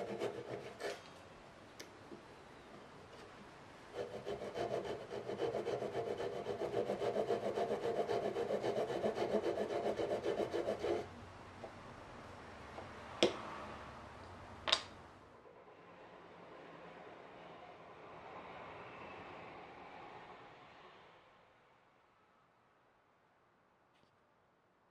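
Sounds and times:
hand saw cutting wood: 0.0s - 1.1s, 3.9s - 11.1s.

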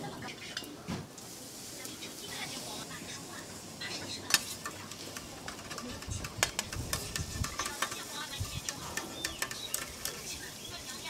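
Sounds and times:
food sizzling: 0.0s - 11.0s
metal spatula scraping griddle: 3.8s - 11.0s.

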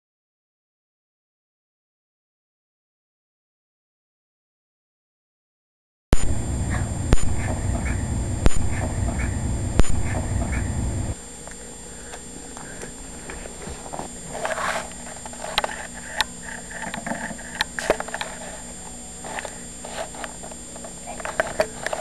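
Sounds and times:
low rumble: 6.2s - 11.2s
dogs playing on carpet: 12.6s - 16.2s.

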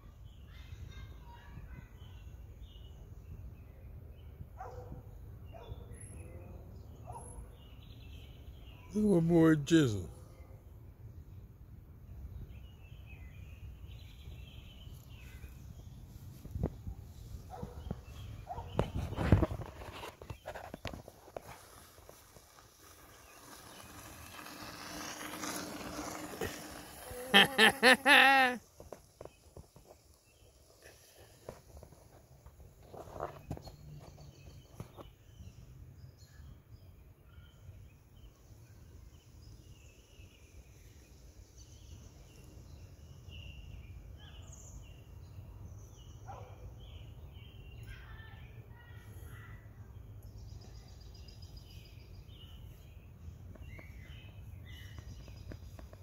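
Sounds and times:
distant falling animal calls: 26.5s - 28.6s
wavering vocal cries: 27.0s - 28.6s.

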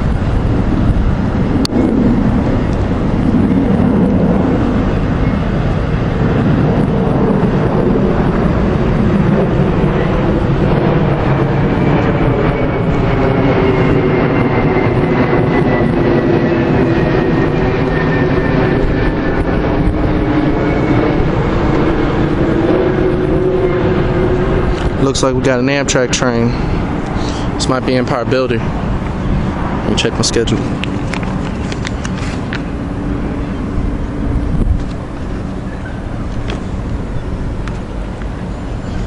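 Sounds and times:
diesel locomotive engine: 0.0s - 39.0s
thin high whine: 0.0s - 39.0s.

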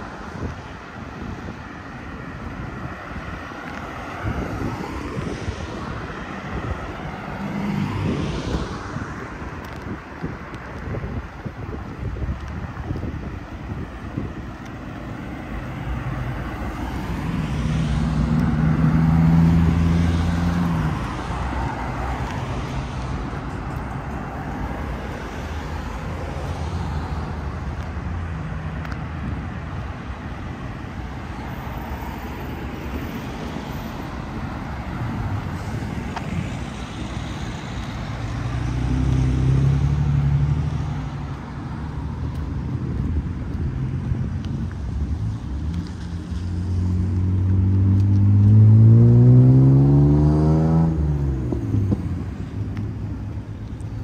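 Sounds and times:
city road traffic: 0.0s - 54.0s
vehicles passing close: 0.0s - 54.0s.

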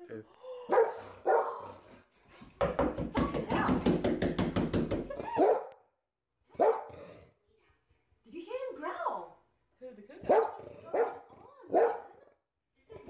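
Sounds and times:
dog barking: 0.7s - 1.7s, 5.3s - 5.8s, 6.5s - 7.0s, 10.2s - 12.2s.

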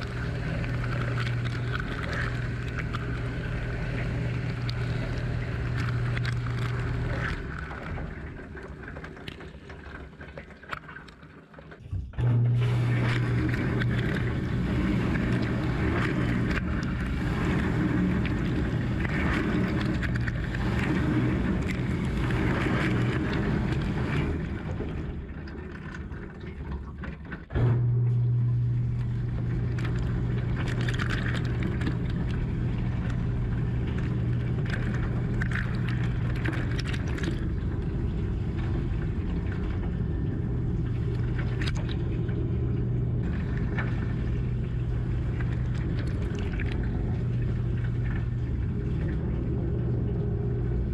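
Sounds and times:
pump humming: 0.0s - 10.9s, 11.8s - 50.9s.

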